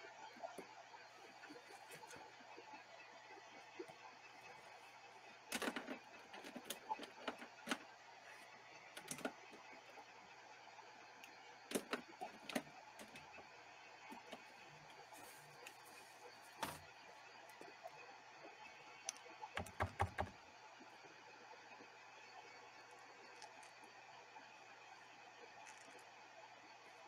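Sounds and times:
sharp clicks and light knocks: 5.5s - 7.8s.

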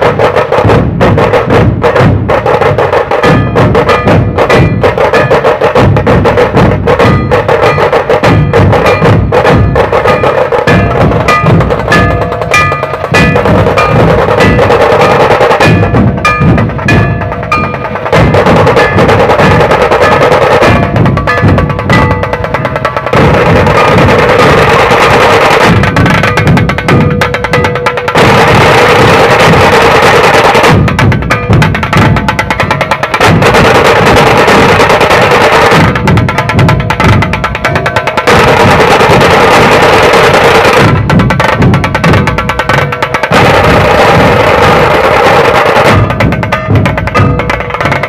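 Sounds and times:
drum ensemble playing fast rhythm: 0.0s - 48.0s.

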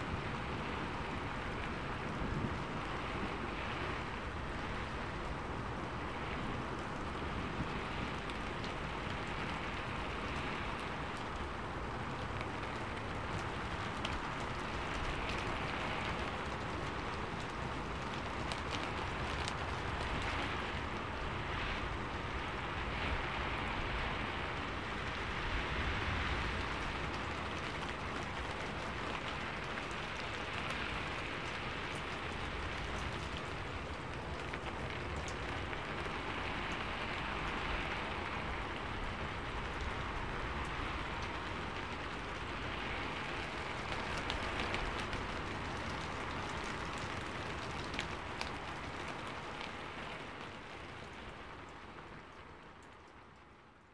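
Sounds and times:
steady rain falling: 0.0s - 53.9s.

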